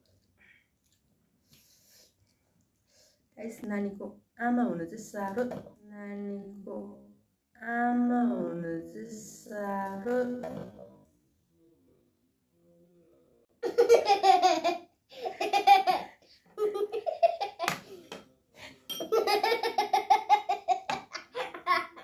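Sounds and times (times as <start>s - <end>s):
woman and girl laughing: 19.1s - 22.0s.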